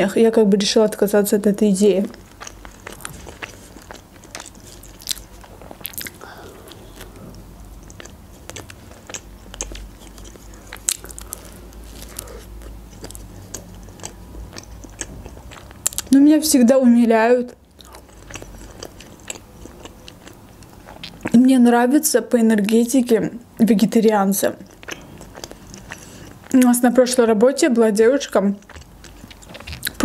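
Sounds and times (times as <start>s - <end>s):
chewing with crunches: 2.0s - 16.3s, 17.4s - 21.6s, 24.1s - 27.0s, 28.1s - 30.0s.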